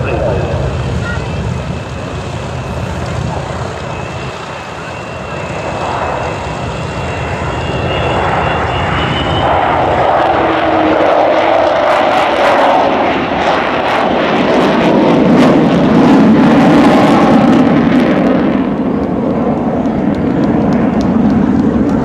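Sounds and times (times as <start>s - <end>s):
jet bomber flying overhead: 0.0s - 22.0s
thin high whine: 2.8s - 10.0s.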